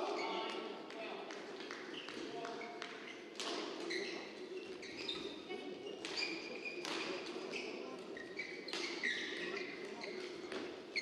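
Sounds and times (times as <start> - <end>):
shoes squeaking on court floor: 3.8 - 11.0.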